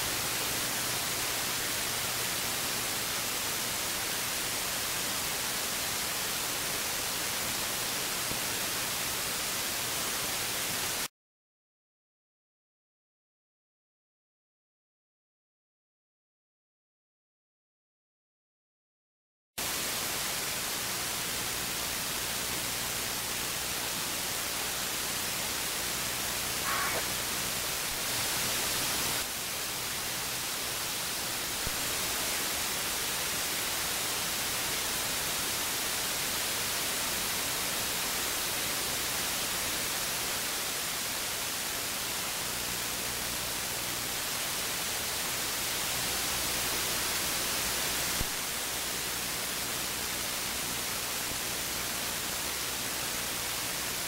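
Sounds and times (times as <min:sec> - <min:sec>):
radio static hiss: 0:20.4 - 0:34.8
short faint tone: 0:26.6 - 0:27.2.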